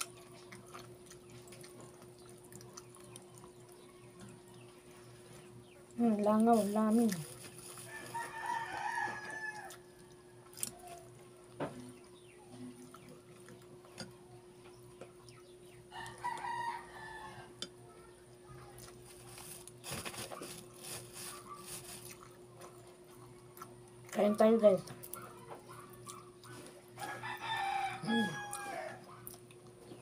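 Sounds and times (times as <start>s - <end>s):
plastic bag crinkling: 6.5s - 8.6s, 19.0s - 22.2s
rooster crowing: 7.8s - 11.1s, 15.9s - 17.6s, 27.0s - 29.2s.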